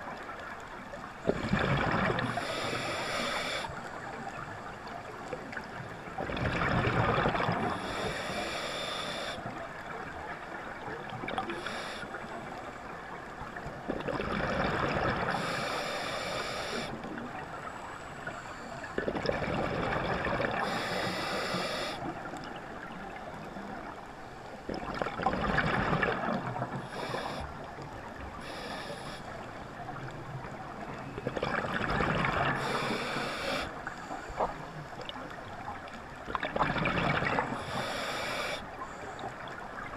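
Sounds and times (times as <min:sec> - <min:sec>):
regulator hissing inhalation: 0:02.3 - 0:03.7, 0:07.8 - 0:09.4, 0:11.6 - 0:12.2, 0:15.4 - 0:17.0, 0:20.6 - 0:22.0, 0:28.4 - 0:29.3, 0:32.6 - 0:33.7, 0:37.6 - 0:38.6
bubbling exhalation underwater: 0:24.8 - 0:26.5.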